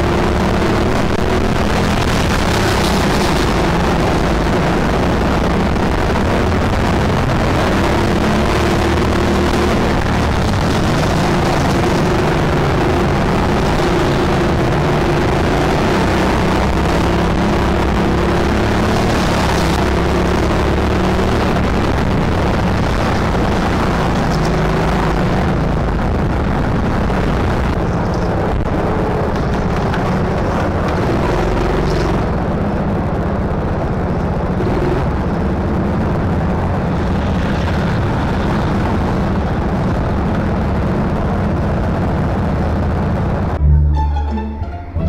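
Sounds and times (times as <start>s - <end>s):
go-kart motor rumble: 0.0s - 44.0s.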